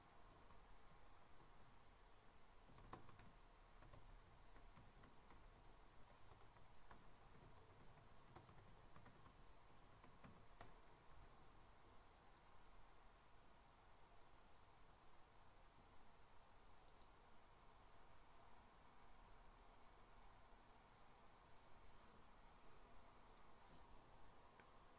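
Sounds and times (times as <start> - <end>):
computer keyboard typing clicks: 2.7 - 5.5, 6.1 - 10.8, 16.8 - 17.1.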